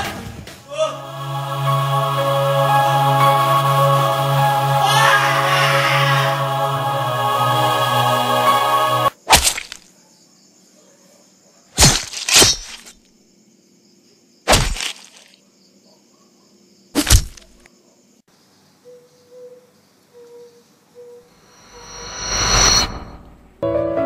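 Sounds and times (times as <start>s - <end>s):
music: 0.0s - 9.1s, 23.6s - 24.0s.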